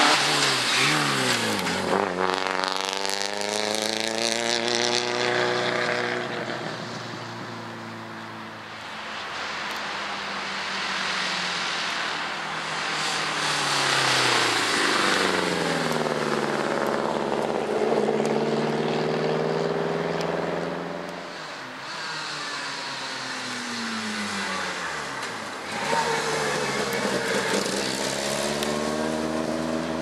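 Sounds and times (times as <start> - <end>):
tyres on gravel: 0.0 - 2.6
rally car engine revving: 0.0 - 8.1, 10.9 - 30.0.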